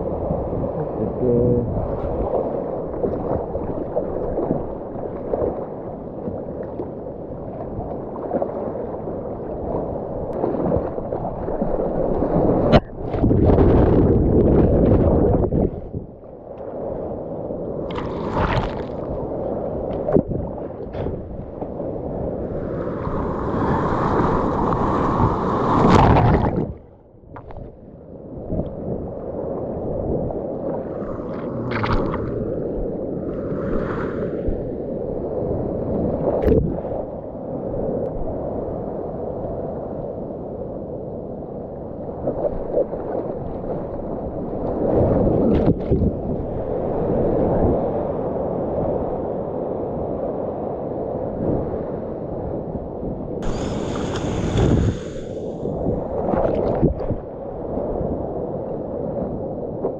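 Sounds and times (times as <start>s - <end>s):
paddling splashes: 17.9s - 19.2s, 30.7s - 34.5s, 53.4s - 55.5s
ocean whitewater rushing: 30.6s - 34.6s, 53.4s - 56.7s.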